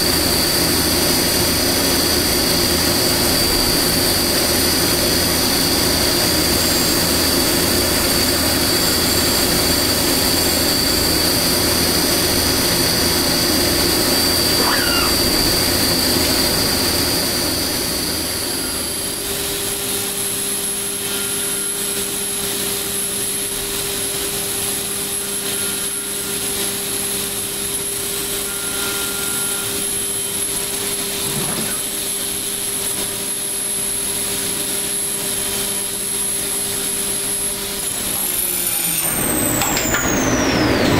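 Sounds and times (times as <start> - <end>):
milling machine spindle whine: 0.0 - 40.9
metal cutting noise: 0.2 - 23.4.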